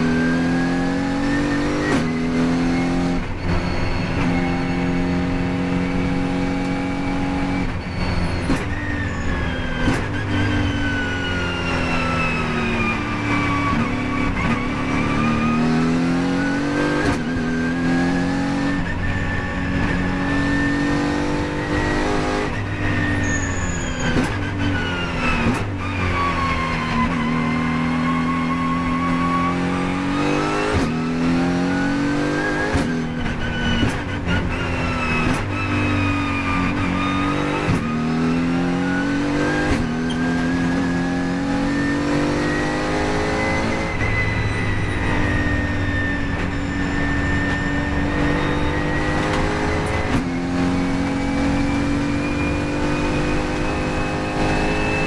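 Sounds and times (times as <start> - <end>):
engine whine: 0.0 - 55.0
race car engine revving: 0.0 - 55.0.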